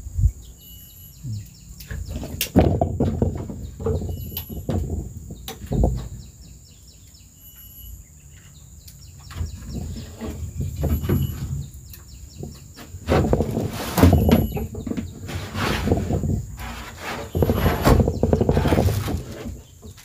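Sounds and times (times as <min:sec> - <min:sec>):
birds chirping: 0:00.2 - 0:20.0
handling knocks and rustling: 0:01.8 - 0:06.5, 0:08.3 - 0:20.0
steady thin high tone: 0:07.4 - 0:08.1.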